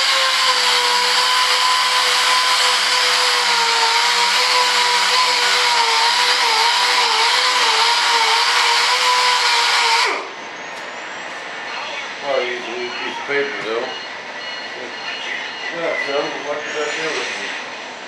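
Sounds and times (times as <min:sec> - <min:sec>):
sander whining: 0:00.0 - 0:10.2.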